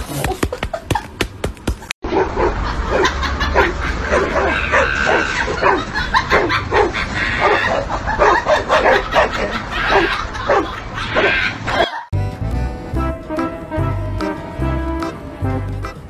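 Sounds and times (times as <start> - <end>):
dogs barking: 2.0 - 12.0.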